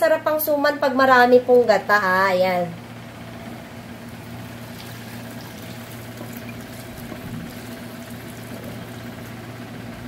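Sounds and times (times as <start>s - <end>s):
constant low hum: 0.0s - 10.0s
thick cream pouring into bowl: 4.4s - 9.4s.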